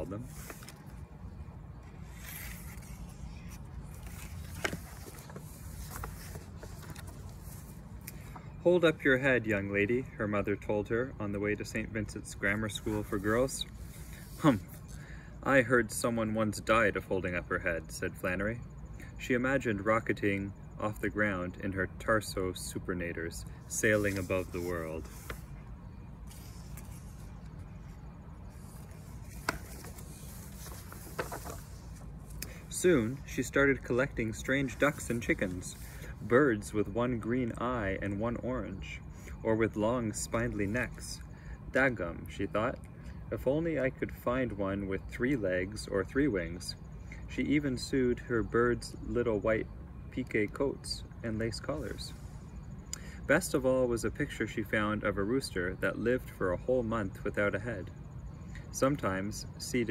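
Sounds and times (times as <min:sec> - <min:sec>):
low outdoor rumble: 0:00.0 - 0:59.9
book pages rustling: 0:00.2 - 0:01.1, 0:01.8 - 0:08.5, 0:23.8 - 0:25.6, 0:26.2 - 0:36.3.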